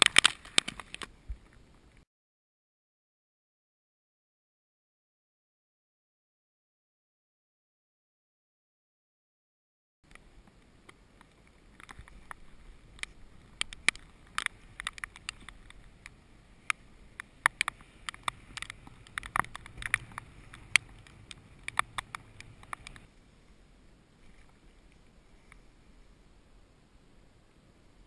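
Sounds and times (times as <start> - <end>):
low wind rumble: 10.1 - 28.0
heavy raindrops tapping: 13.0 - 23.1.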